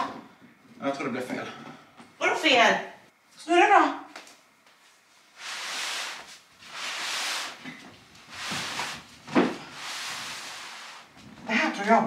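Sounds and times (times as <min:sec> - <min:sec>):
rug swishing over parquet floor: 0:05.2 - 0:11.4
rug thud: 0:08.4 - 0:09.8.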